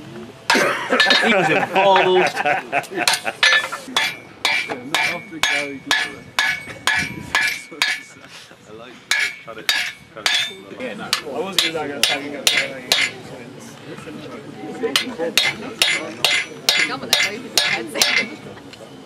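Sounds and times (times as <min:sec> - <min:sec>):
hammer striking steel on anvil: 0:00.5 - 0:01.4, 0:03.1 - 0:08.2, 0:09.1 - 0:13.2, 0:14.9 - 0:18.4.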